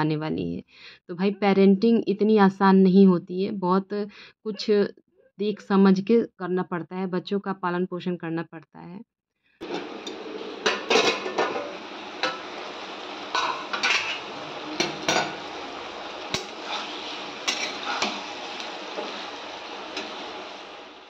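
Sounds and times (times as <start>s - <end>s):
oil frying hiss: 9.6s - 21.0s
spatula scraping a metal pan: 13.4s - 15.4s, 16.3s - 20.4s.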